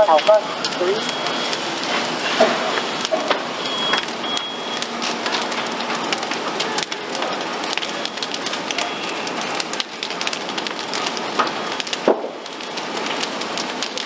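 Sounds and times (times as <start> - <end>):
fire rushing and crackling: 0.0 - 14.0
sharp pop: 12.1 - 12.4.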